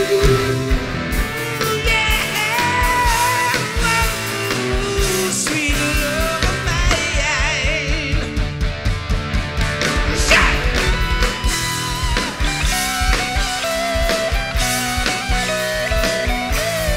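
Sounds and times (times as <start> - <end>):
person singing: 0.0 - 8.4, 10.1 - 11.3
drum beat: 0.0 - 16.9
electric guitar: 0.0 - 16.9.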